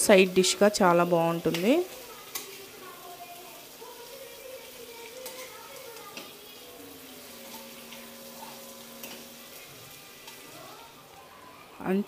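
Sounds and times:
potatoes sizzling in oil: 0.0 - 12.0
spatula clicking against pan: 2.3 - 2.6, 5.2 - 6.3.

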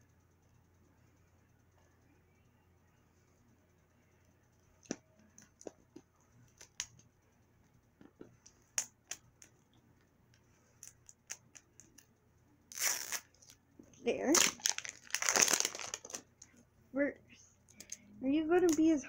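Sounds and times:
plastic packaging clicking and crackling: 14.3 - 16.3.

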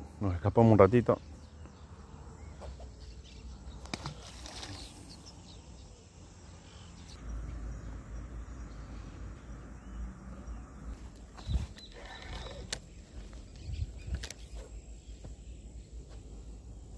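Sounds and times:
insects chirping: 0.5 - 16.9
creek: 2.5 - 5.8.

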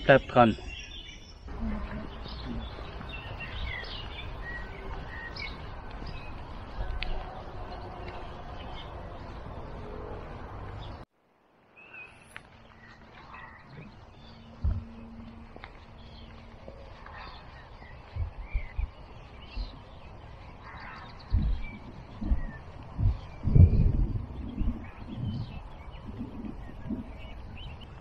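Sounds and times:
outdoor background noise: 0.0 - 28.0
songbirds chirping: 0.0 - 28.0
low thump: 14.6 - 15.0, 21.3 - 24.8.

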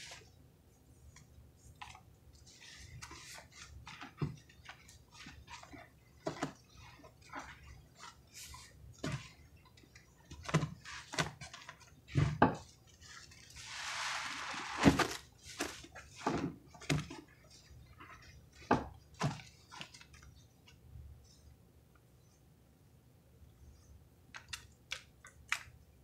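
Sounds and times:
sponges squelching: 13.0 - 16.2
crackling foam hiss: 13.5 - 15.2.

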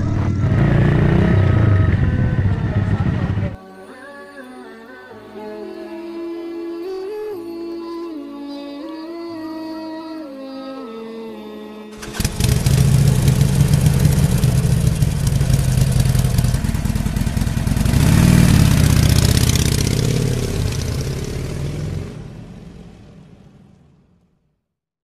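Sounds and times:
motorcycle engine revving: 0.0 - 3.6, 12.0 - 24.2
motorcycle engine running: 0.0 - 3.6, 12.0 - 24.2.

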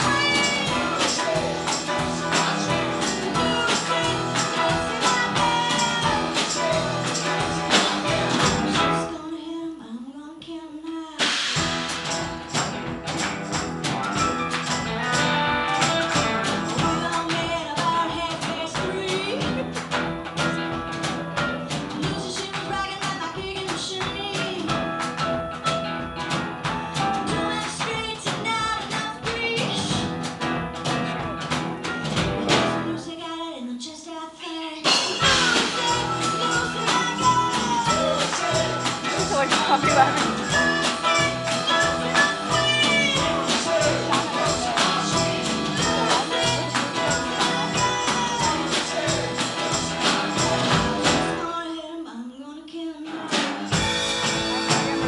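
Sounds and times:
live band music: 0.0 - 9.2, 11.2 - 33.1, 34.8 - 51.5, 53.1 - 55.0.

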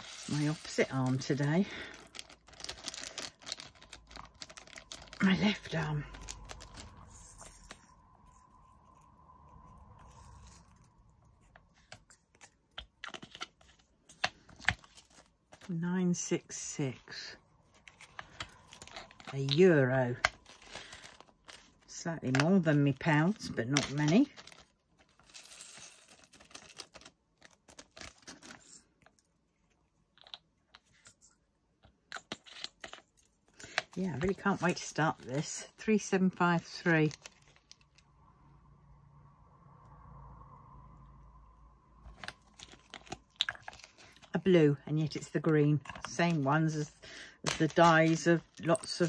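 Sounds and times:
plastic pots clicking and rattling: 0.0 - 7.0, 45.1 - 49.0.

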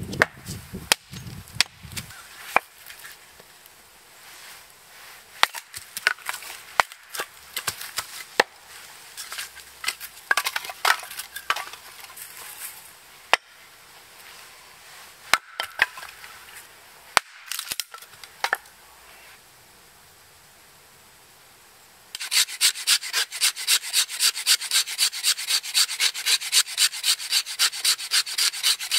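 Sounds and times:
hatchet chopping wood: 0.1 - 2.7, 5.4 - 8.5, 15.3 - 16.1, 17.2 - 18.6.

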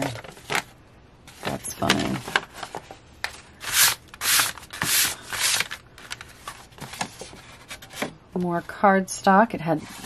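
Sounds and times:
paper rustling and crinkling: 0.0 - 8.1.

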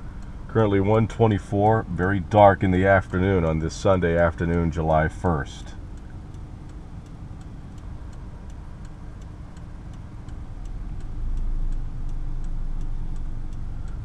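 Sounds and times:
car rumble: 0.0 - 14.0
turn-signal indicator clicking: 5.8 - 14.0.

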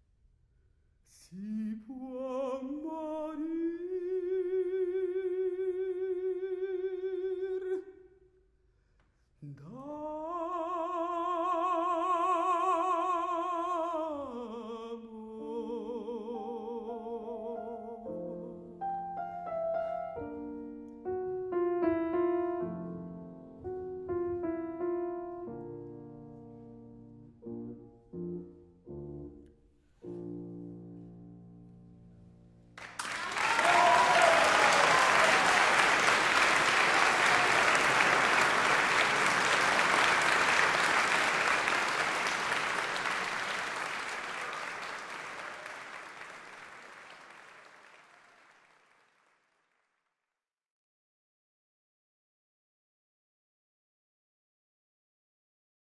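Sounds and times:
grand piano chords: 17.1 - 32.9
audience applause: 32.8 - 49.5.

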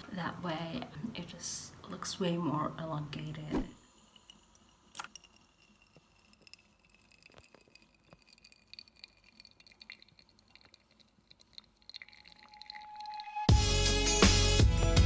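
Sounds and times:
coffee dripping into carafe: 4.0 - 13.5.

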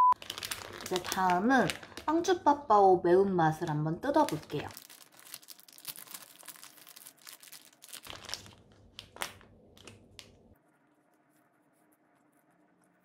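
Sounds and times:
plastic wrapper crinkling: 0.2 - 2.5, 4.0 - 10.4.

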